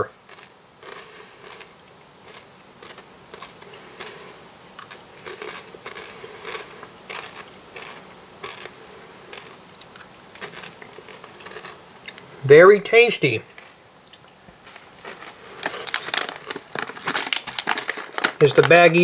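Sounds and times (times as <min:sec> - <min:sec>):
candy crunching while chewing: 0:00.0 - 0:12.3, 0:13.5 - 0:19.0.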